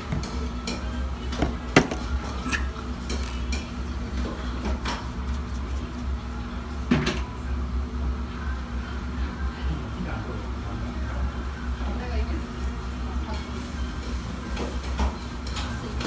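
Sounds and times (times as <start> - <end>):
dishes and utensils clinking: 0.1 - 5.1, 13.3 - 16.0.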